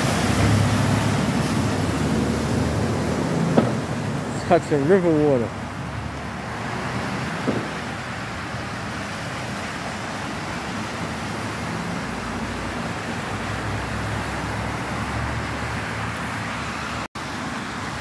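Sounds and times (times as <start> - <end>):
deep engine rumble: 0.0 - 8.8
steady wash of noise: 0.0 - 18.0
tyres splashing through water: 0.0 - 18.0.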